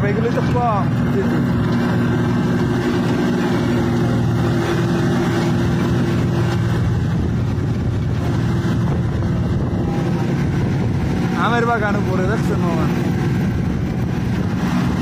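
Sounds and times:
road noise: 0.0s - 15.0s
vehicle engine humming: 0.0s - 15.0s.

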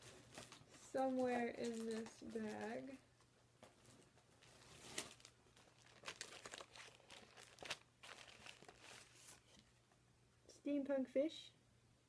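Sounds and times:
plastic bags crinkling: 0.0s - 3.0s, 3.6s - 9.6s.

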